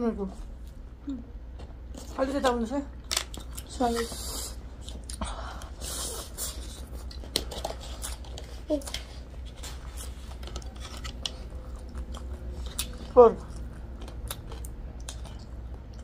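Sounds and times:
food being chewed: 1.5 - 16.0.

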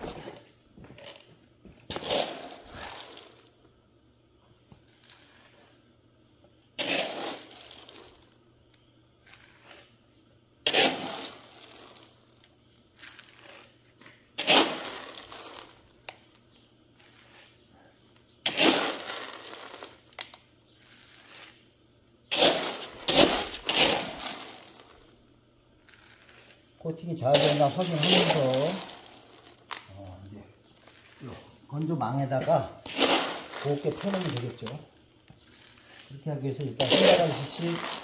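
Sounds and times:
plastic scoop in basin: 0.0 - 3.6, 6.8 - 8.4, 10.7 - 12.4, 18.5 - 21.6, 22.3 - 25.2, 27.2 - 30.0, 30.8 - 38.0
beans spilling onto mat: 0.0 - 3.8, 4.7 - 5.8, 6.8 - 8.4, 9.2 - 10.0, 10.6 - 16.2, 18.4 - 21.7, 22.3 - 25.2, 25.8 - 38.0.

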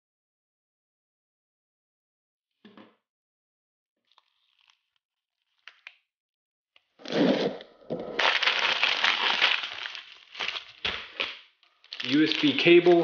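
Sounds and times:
plastic bag crinkling and tearing: 8.1 - 13.0.

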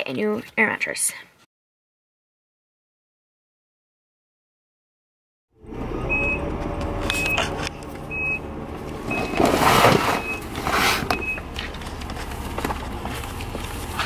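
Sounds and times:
car engine running: 5.6 - 14.0
car warning chime beeping: 6.0 - 11.7.

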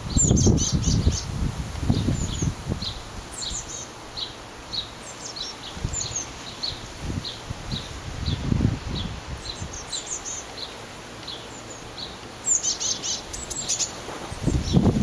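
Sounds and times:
wind buffeting microphone: 0.0 - 3.7, 5.6 - 10.0, 13.3 - 15.0.

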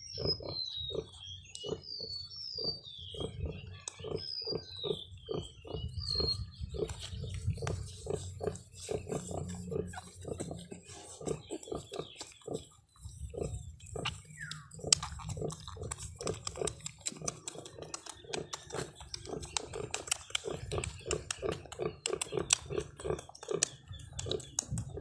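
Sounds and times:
piglets suckling: 2.6 - 25.0
sow grunting: 3.2 - 12.7.

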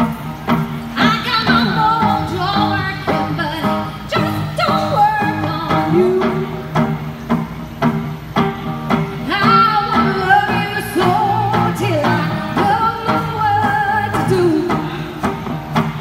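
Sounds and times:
bass guitar: 0.0 - 16.0
electric guitars: 0.0 - 16.0
woman singing: 1.0 - 6.6, 9.2 - 15.5.

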